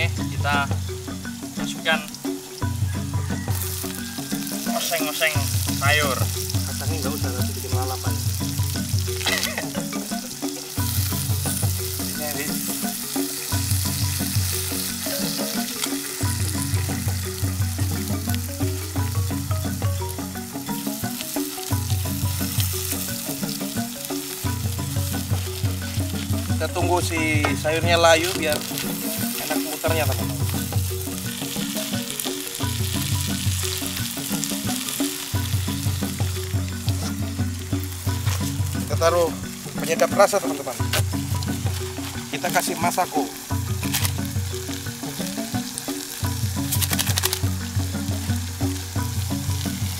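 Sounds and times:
fire crackling: 0.0s - 49.9s
greens sizzling in a wok: 0.0s - 49.9s
music with pulsing bass: 0.0s - 49.9s.

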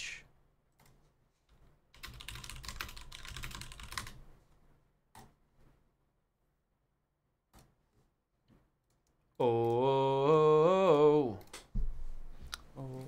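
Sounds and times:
rapid typing on keyboard: 1.9s - 4.3s.

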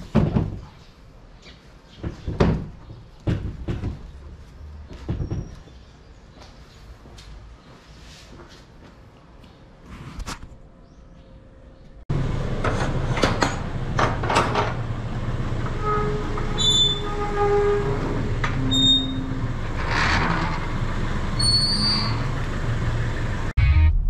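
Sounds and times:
metal wheels rolling: 15.6s - 22.5s
metal gate clanks: 15.7s - 20.8s
wheel squeals: 15.8s - 20.7s, 21.3s - 22.4s.

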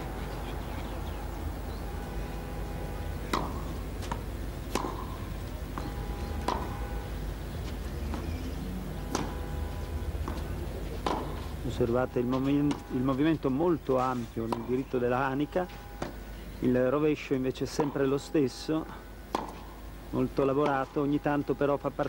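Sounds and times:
steady low hum: 0.0s - 22.0s
tennis ball bouncing: 3.2s - 13.8s, 14.4s - 16.2s, 17.7s - 18.2s, 18.8s - 21.0s
tennis racquets striking ball: 3.2s - 14.8s, 16.0s - 16.2s, 17.7s - 18.2s, 18.8s - 21.0s.

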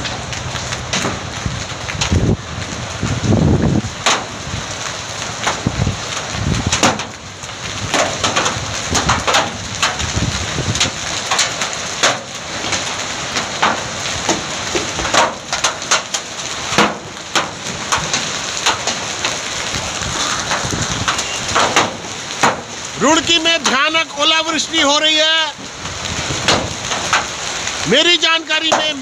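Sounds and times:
hail clattering on road: 0.0s - 29.0s
hiss of falling hail and rain: 0.0s - 29.0s.

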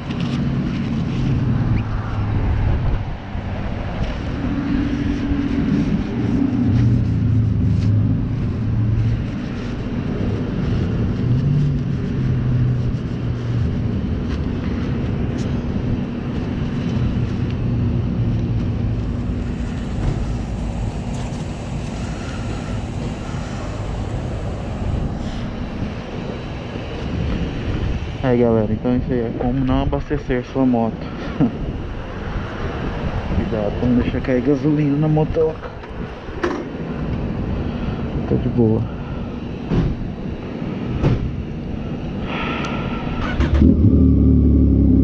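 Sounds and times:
wind rumbling on microphone: 0.0s - 45.0s
vehicle engine running: 3.6s - 27.4s, 42.9s - 45.0s.

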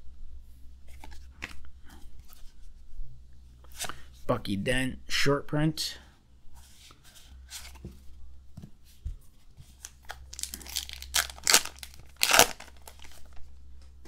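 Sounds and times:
card pack wrapper tearing: 9.8s - 13.3s.

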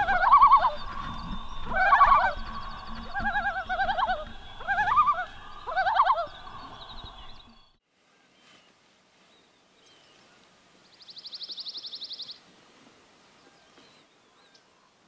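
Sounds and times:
loons calling: 0.0s - 7.8s.

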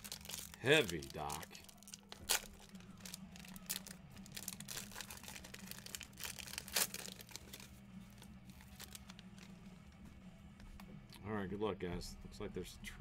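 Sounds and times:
wrapper tearing and crinkling: 0.0s - 9.5s.

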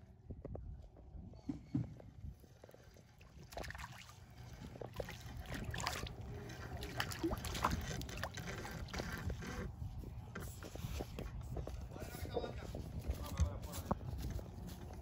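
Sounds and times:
splashes in shallow water: 3.1s - 8.9s.

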